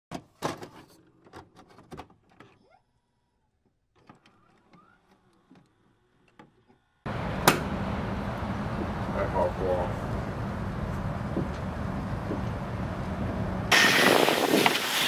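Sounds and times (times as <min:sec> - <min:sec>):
loud rushing noise: 0:07.1 - 0:15.0.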